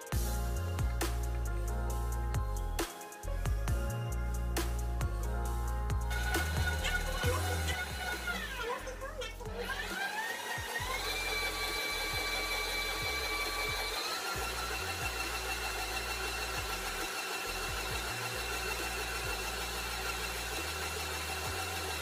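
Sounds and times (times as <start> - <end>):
stand mixer motor whine: 6.1 - 8.9, 9.5 - 22.0.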